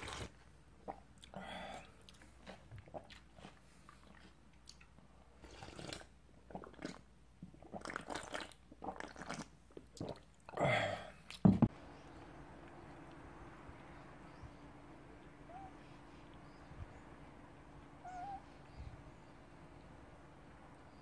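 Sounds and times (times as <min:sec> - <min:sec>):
person chewing and crunching ice: 0:01.2 - 0:07.0.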